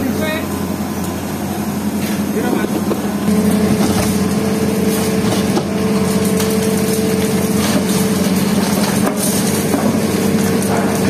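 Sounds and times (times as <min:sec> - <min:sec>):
excavator engine humming: 0:00.0 - 0:11.0
brick wall cracking: 0:05.0 - 0:11.0.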